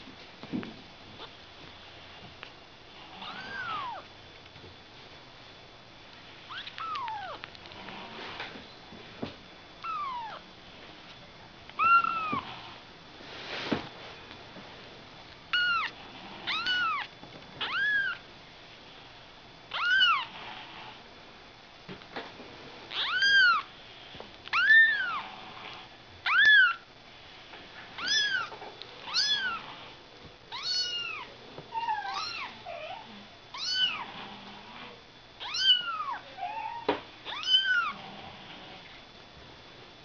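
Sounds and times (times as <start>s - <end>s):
kittens mewing: 3.2s - 4.0s, 6.5s - 7.4s, 9.8s - 10.4s, 11.8s - 12.5s, 15.5s - 18.2s, 19.7s - 20.3s, 30.5s - 34.0s.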